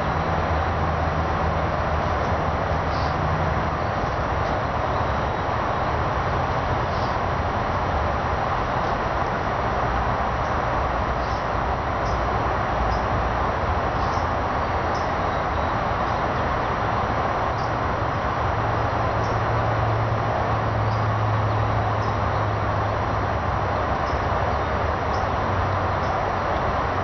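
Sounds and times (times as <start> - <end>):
steady rushing noise: 0.0 - 27.0.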